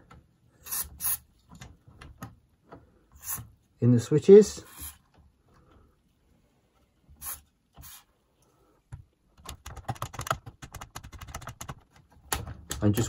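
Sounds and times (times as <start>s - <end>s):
aerosol spray hisses: 7.2s - 8.1s.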